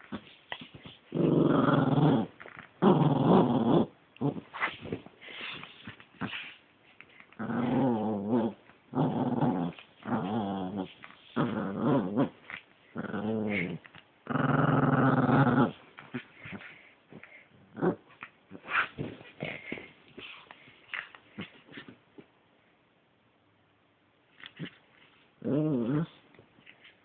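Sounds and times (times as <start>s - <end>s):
puppy growling in play: 0.0s - 22.0s, 25.4s - 26.8s.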